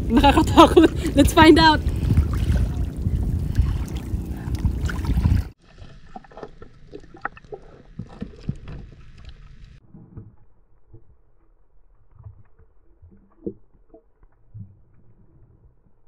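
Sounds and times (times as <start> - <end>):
water sloshing and splashing: 0.0 - 9.8
low rumble: 0.0 - 16.0
small splashes and knocks: 1.6 - 9.2.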